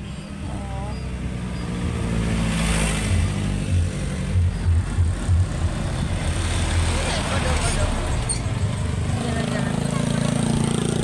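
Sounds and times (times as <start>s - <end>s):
vehicle engine running: 0.0s - 11.0s
low thumps: 3.7s - 6.5s.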